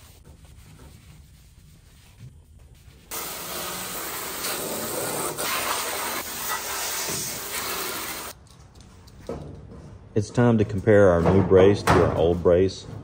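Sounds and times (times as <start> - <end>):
spray wand hissing: 3.1 - 8.4.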